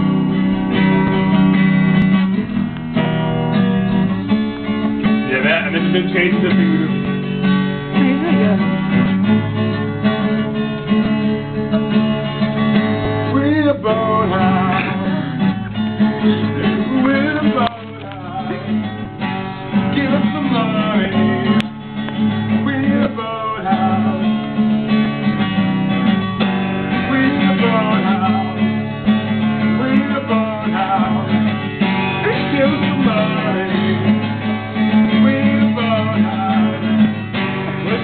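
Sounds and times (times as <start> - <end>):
acoustic guitar strumming: 0.0 - 38.0
voices singing: 4.2 - 7.2, 13.3 - 24.8, 26.9 - 38.0.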